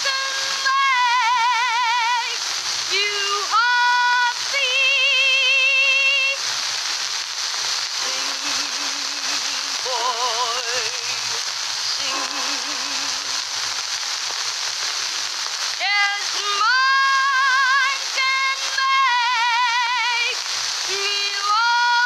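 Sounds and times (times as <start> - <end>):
man singing with vibrato: 0.0 - 6.4, 8.0 - 13.6
steady hiss: 0.0 - 22.0.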